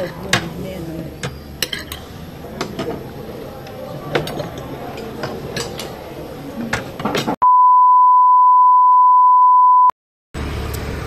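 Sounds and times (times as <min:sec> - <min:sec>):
dishes and cutlery clinking: 0:00.0 - 0:07.4
steady test-tone beep: 0:07.4 - 0:09.9.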